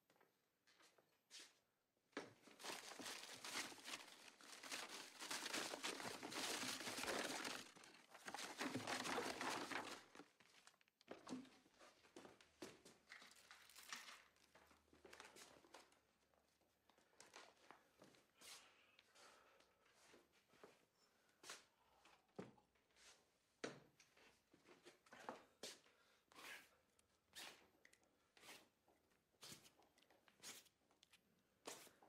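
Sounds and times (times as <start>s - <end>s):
paper crumpling and rustling: 2.4s - 10.9s, 13.1s - 14.4s.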